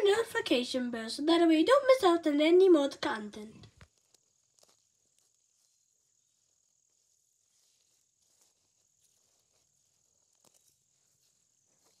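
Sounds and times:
high-pitched insect trill: 0:04.6 - 0:12.0.

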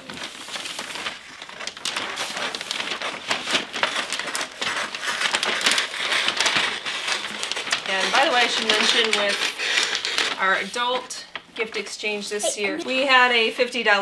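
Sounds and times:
wrapping paper crinkling: 0:00.0 - 0:13.0
scissors cutting paper: 0:03.6 - 0:10.4.

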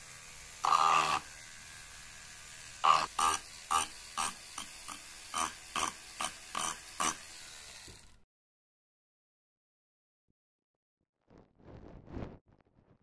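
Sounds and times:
rotary tool grinding wood: 0:00.0 - 0:08.2.

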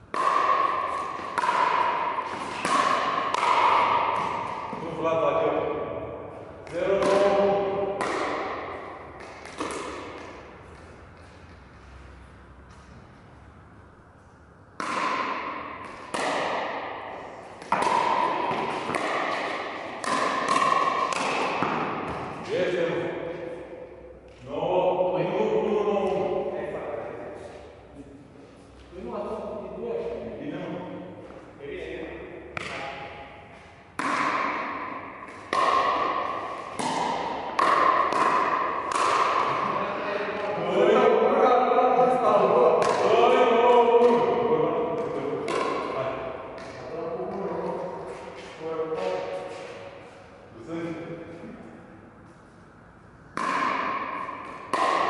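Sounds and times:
paddles hitting plastic ball: 0:00.0 - 0:04.8, 0:06.6 - 0:11.6, 0:14.8 - 0:22.5, 0:33.9 - 0:39.6, 0:45.0 - 0:47.5, 0:53.3 - 0:55.0.

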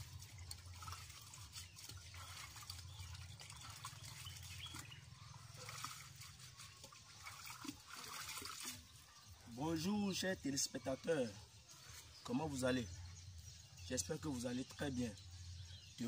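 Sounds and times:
water drips: 0:00.0 - 0:09.0
water splashing in a clay pot: 0:00.0 - 0:10.7.

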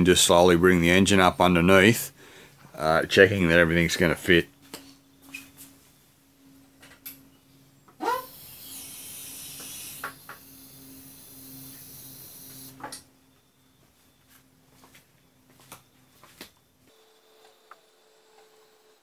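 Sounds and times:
hydraulic lift hissing: 0:08.0 - 0:12.8.

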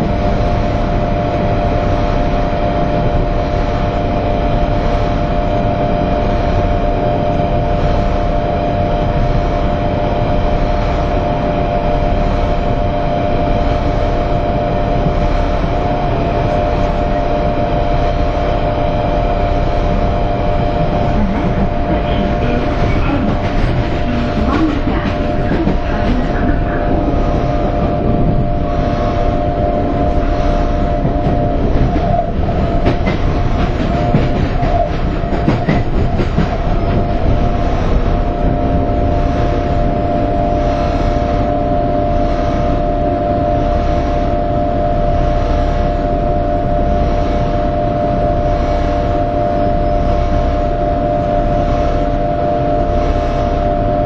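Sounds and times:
high whine: 0:00.0 - 0:54.0
train wheels rumbling on rail: 0:00.0 - 0:54.0
faint regular beat: 0:29.7 - 0:37.9.

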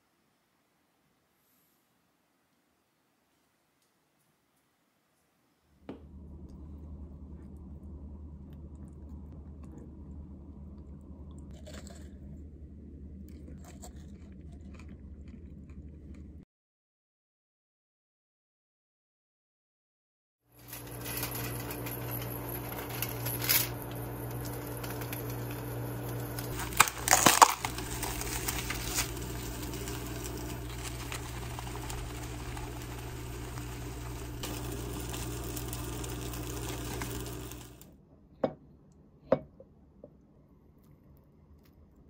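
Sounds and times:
low electrical hum: 0:00.0 - 0:16.4, 0:20.6 - 0:42.0
plastic pack and glass bowl clatter: 0:20.6 - 0:25.6, 0:26.4 - 0:33.1.

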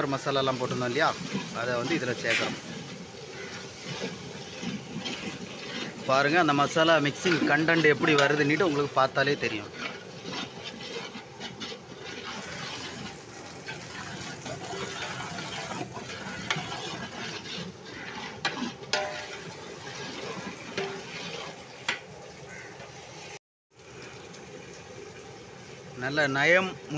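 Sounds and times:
ladle stirring wet mixture: 0:00.0 - 0:26.0
ladle clicking against metal pot: 0:18.4 - 0:19.4.

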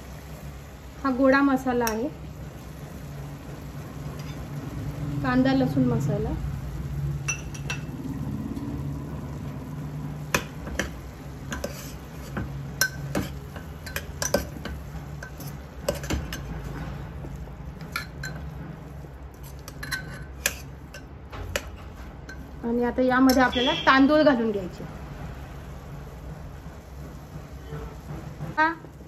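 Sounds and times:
ladle scraping and knocking pot: 0:10.2 - 0:22.6.

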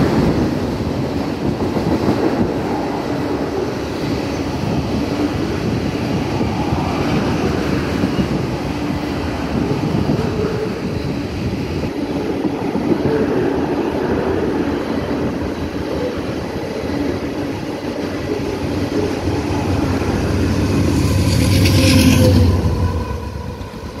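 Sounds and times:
freight train rumbling on rails: 0:00.0 - 0:24.0.

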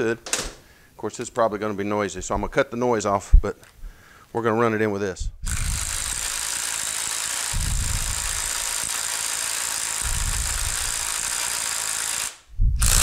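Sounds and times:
power drill whirring: 0:05.4 - 0:13.0.

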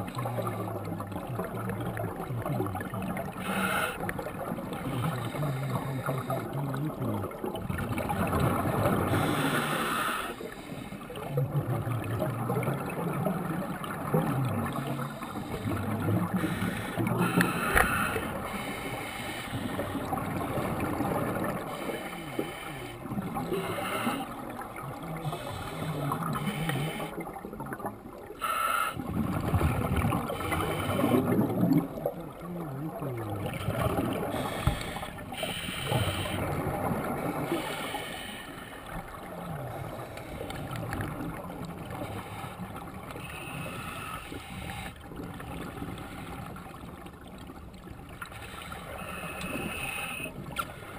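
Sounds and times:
bubbles gurgling: 0:00.0 - 0:28.4, 0:29.0 - 0:38.0, 0:38.9 - 0:43.6
diver breathing through regulator: 0:03.4 - 0:04.1, 0:08.9 - 0:11.2, 0:15.0 - 0:20.2, 0:21.5 - 0:24.4, 0:25.1 - 0:27.2, 0:28.4 - 0:29.1, 0:30.2 - 0:31.5, 0:33.5 - 0:36.6, 0:37.3 - 0:39.1, 0:41.9 - 0:45.1, 0:48.3 - 0:50.9.

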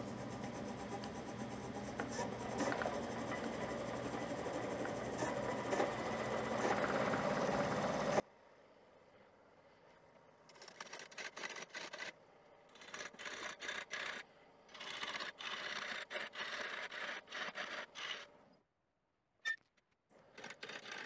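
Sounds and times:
lathe tool scraping wood: 0:00.0 - 0:08.2, 0:14.8 - 0:18.4.

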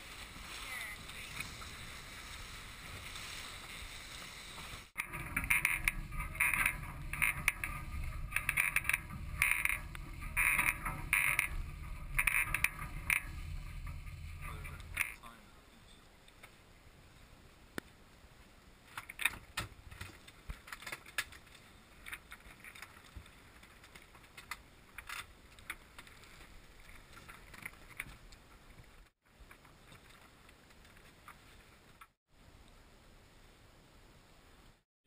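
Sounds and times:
faint water noise: 0:00.0 - 0:17.5, 0:19.8 - 0:34.8
light clicks and rattles: 0:05.0 - 0:15.3.

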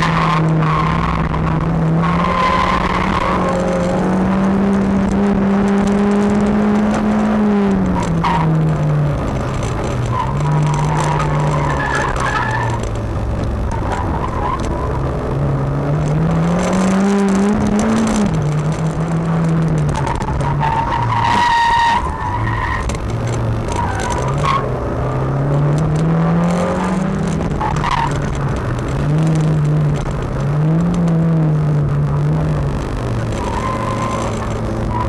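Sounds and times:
car engine revving: 0:00.0 - 0:35.0
tyre squeal: 0:10.0 - 0:12.8, 0:19.9 - 0:23.0, 0:23.6 - 0:24.7, 0:33.2 - 0:35.0.

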